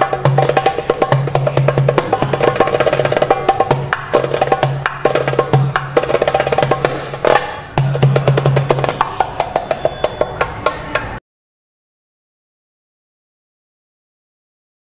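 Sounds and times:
goblet drum played by hand: 0:00.0 - 0:11.2.

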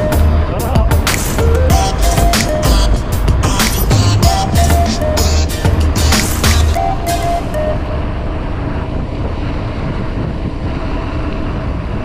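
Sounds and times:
short music notes: 0:00.0 - 0:08.0
road noise: 0:00.0 - 0:12.0
wind buffeting microphone: 0:00.0 - 0:12.0.

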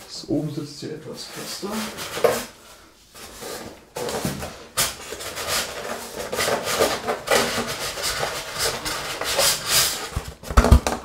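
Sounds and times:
foam rubbing and scraping: 0:04.7 - 0:10.4.

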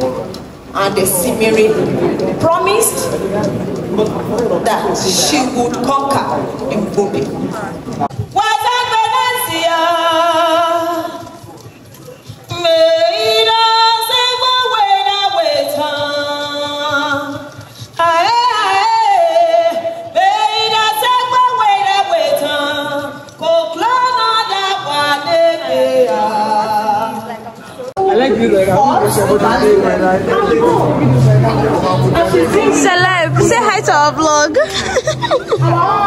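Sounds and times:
woman singing unaccompanied: 0:08.2 - 0:11.5, 0:12.5 - 0:27.6, 0:32.2 - 0:36.0.

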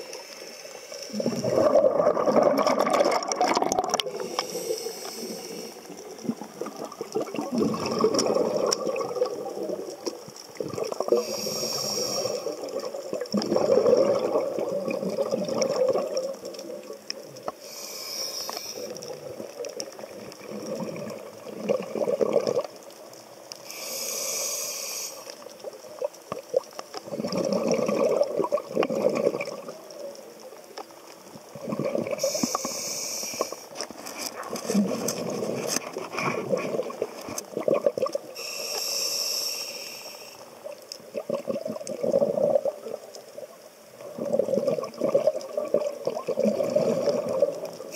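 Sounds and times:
regulator inhalation hiss: 0:00.0 - 0:01.4, 0:04.0 - 0:06.2, 0:11.1 - 0:12.6, 0:17.5 - 0:19.0, 0:23.6 - 0:25.5, 0:32.2 - 0:33.8, 0:38.3 - 0:40.6
gurgling exhaled bubbles: 0:01.1 - 0:17.5, 0:18.8 - 0:22.9, 0:25.6 - 0:30.0, 0:31.4 - 0:32.8, 0:34.4 - 0:38.4, 0:41.0 - 0:47.9.

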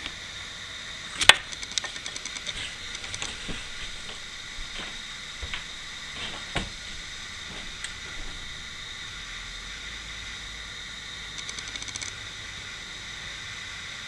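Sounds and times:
model train whine and hiss: 0:00.0 - 0:14.0.

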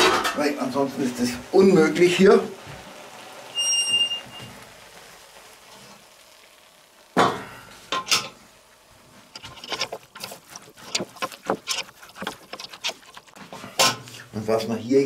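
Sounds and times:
metal pot clanking: 0:07.2 - 0:08.4
wooden spoon scraping in pot: 0:09.2 - 0:14.3.

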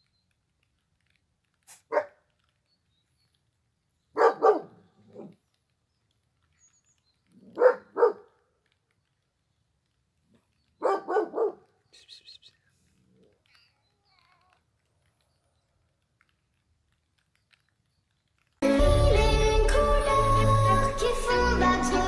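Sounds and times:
dog barking: 0:01.7 - 0:02.2, 0:04.2 - 0:05.4, 0:07.4 - 0:08.3, 0:10.8 - 0:11.7.

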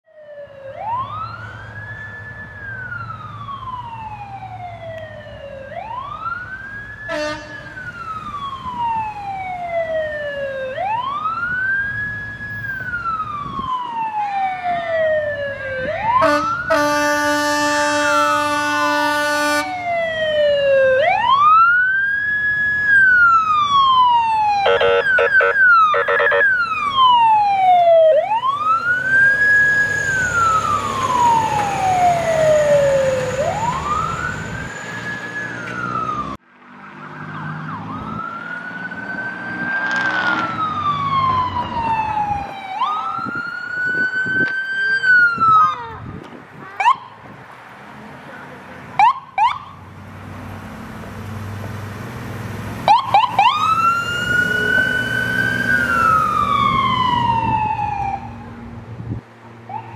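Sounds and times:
fire engine siren wailing: 0:00.0 - 0:47.3, 0:48.9 - 0:59.9
ambulance siren wailing: 0:00.1 - 0:47.2, 0:49.0 - 0:49.9, 0:52.5 - 0:58.8, 0:59.6 - 0:59.9
horn blasts: 0:07.1 - 0:07.8, 0:16.2 - 0:19.8, 0:24.7 - 0:26.5.

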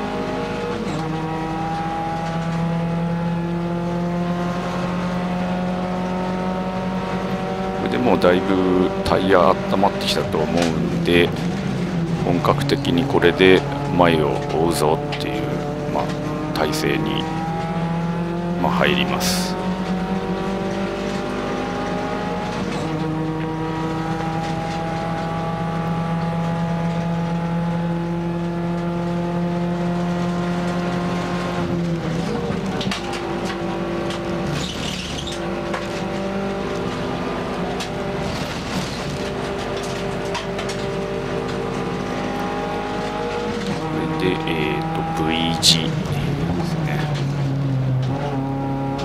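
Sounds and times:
race car engine running hard: 0:00.0 - 0:49.0
tyre squeal: 0:34.5 - 0:35.6.

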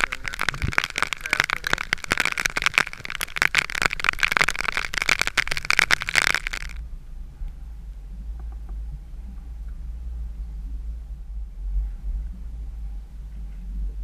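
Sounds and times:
heavy rain falling: 0:00.0 - 0:06.8
faint low rumble: 0:00.0 - 0:14.0.

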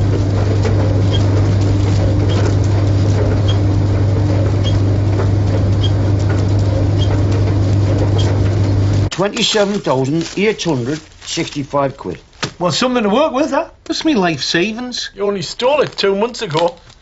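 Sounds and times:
tumble dryer humming: 0:00.0 - 0:11.0
dryer drum ticking: 0:00.0 - 0:11.5.

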